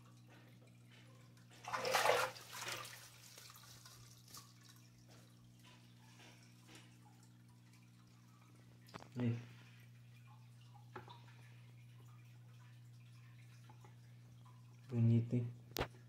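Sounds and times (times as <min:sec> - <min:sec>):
water dripping: 0:00.0 - 0:16.0
water splashing: 0:01.6 - 0:04.9.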